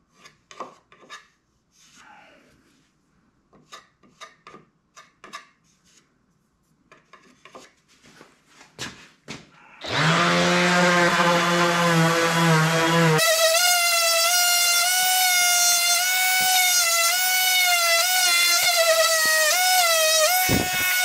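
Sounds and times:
electric power tool humming: 9.8 - 21.0
hand rasp scraping wood: 9.9 - 21.0.

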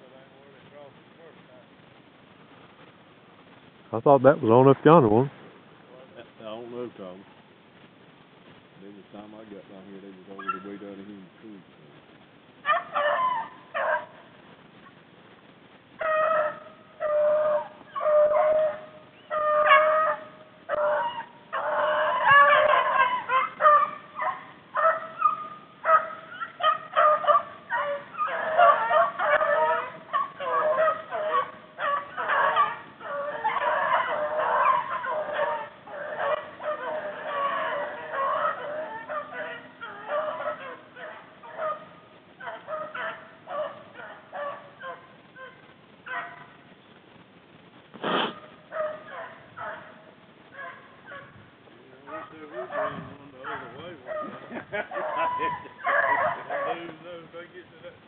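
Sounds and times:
hounds baying: 10.3 - 11.0, 12.6 - 14.4, 16.0 - 46.6, 48.1 - 57.6.

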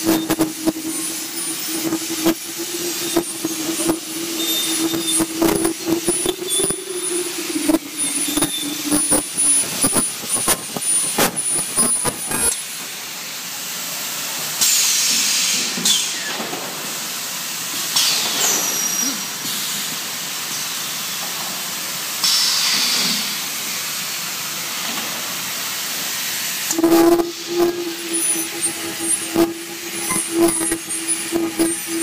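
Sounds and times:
faint falling high squeal: 0.0 - 10.4
low steady buzz: 0.0 - 10.7
welding machine hissing: 0.0 - 13.7, 14.4 - 32.0.

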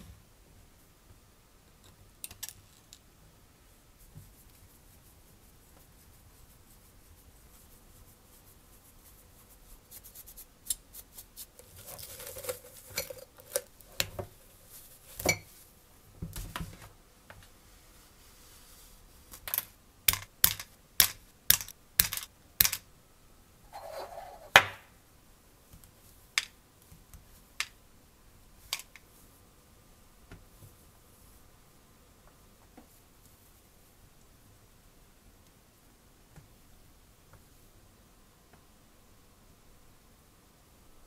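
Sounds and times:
metal tools clicking and tapping: 19.5 - 22.8
metal scraping: 23.7 - 24.5.

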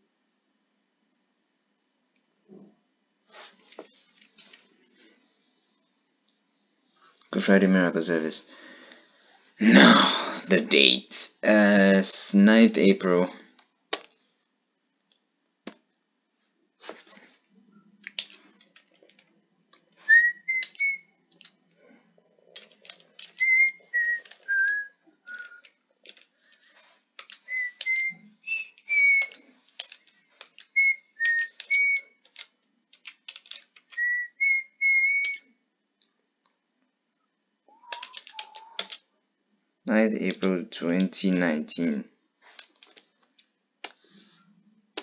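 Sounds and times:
person whistling a tune: 20.1 - 21.0, 23.4 - 25.7, 27.5 - 29.4, 30.8 - 32.1, 34.0 - 35.5
keyboard and mouse clicking: 31.3 - 34.0.

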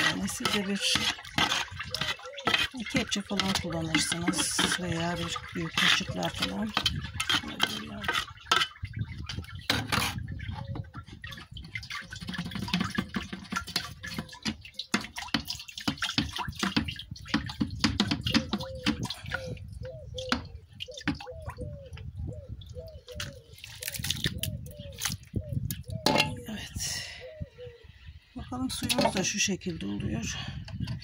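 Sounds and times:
metal trowel scraping metal basin: 0.0 - 10.4, 11.1 - 19.0, 26.0 - 26.4, 28.7 - 29.4
juice sloshing and dripping: 0.0 - 26.4.

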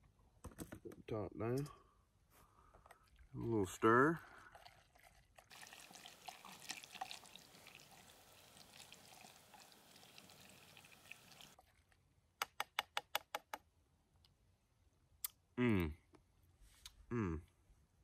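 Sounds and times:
noodles squelching in pot: 4.4 - 11.6.

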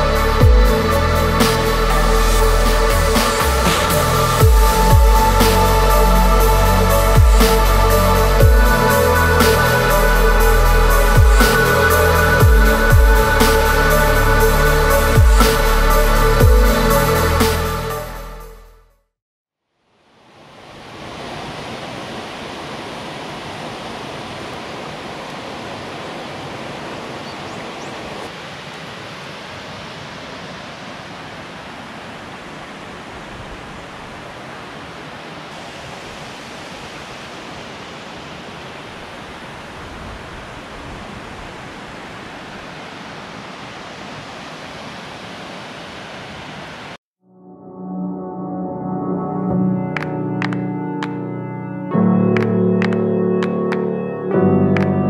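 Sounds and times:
waterfall rushing: 0.0 - 18.0, 20.1 - 47.0.

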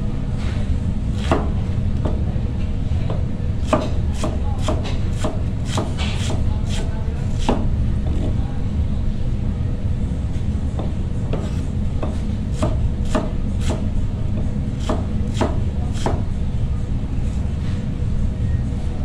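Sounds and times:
steady low hum: 0.0 - 19.0
knife chopping cabbage: 3.6 - 7.7, 11.3 - 13.9, 14.8 - 16.3.

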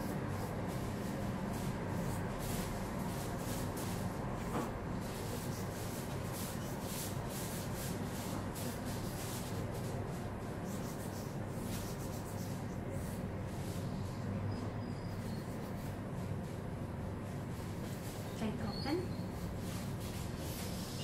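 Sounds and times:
soft rustling and rubbing: 15.5 - 21.0.

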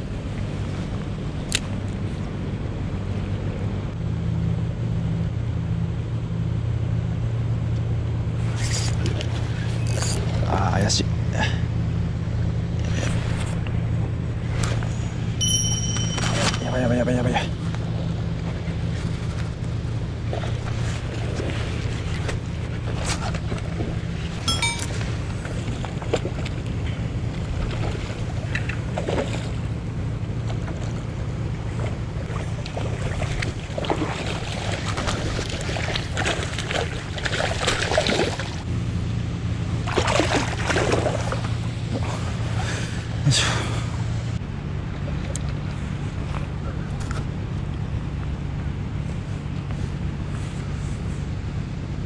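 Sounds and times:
low motor hum: 0.0 - 52.0
sea washing: 15.4 - 38.7, 39.4 - 43.8.

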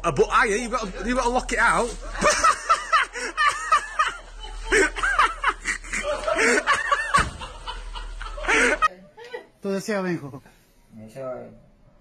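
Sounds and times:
people laughing: 0.8 - 8.9.

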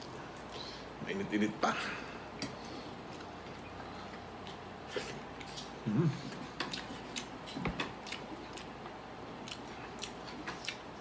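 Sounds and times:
person chewing food: 2.3 - 11.0.

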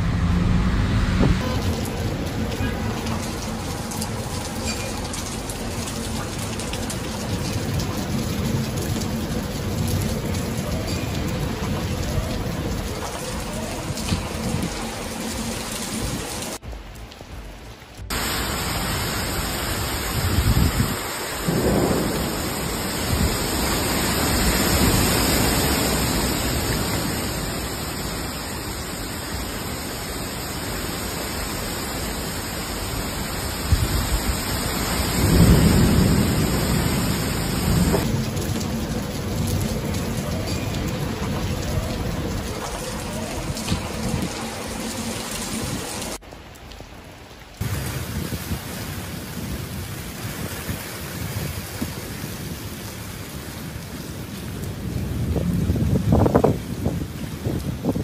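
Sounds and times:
thunder rolling: 0.0 - 16.8, 18.1 - 27.8, 33.6 - 46.2, 53.8 - 58.0
heavy rain hissing: 0.0 - 58.0.

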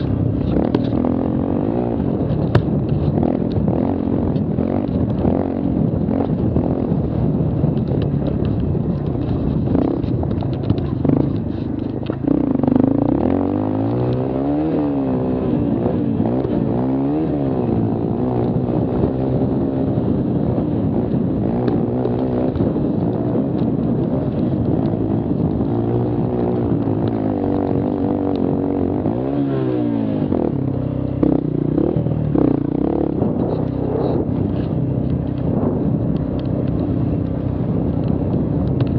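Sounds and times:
quad engine revving: 0.0 - 7.0, 12.2 - 20.1
knocks and rattles: 7.7 - 12.3.

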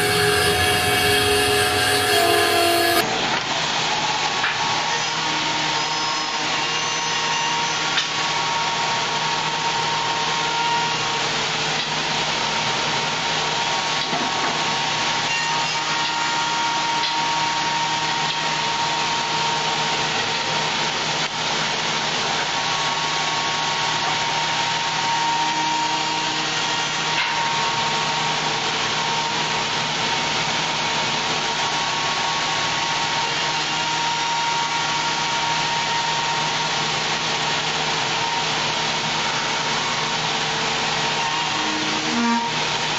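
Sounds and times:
lathe cutting wood: 0.0 - 3.0
machine hum: 0.0 - 3.0
machine whine: 0.0 - 4.2.

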